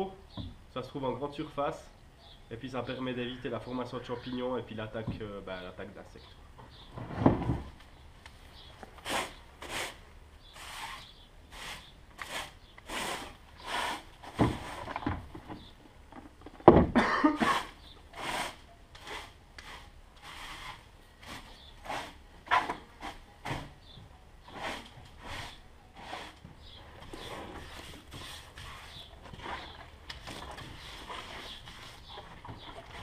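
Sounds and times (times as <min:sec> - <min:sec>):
bristles scrubbing wooden boards: 0:09.0 - 0:15.0, 0:17.4 - 0:23.2, 0:24.5 - 0:26.4, 0:27.1 - 0:33.0.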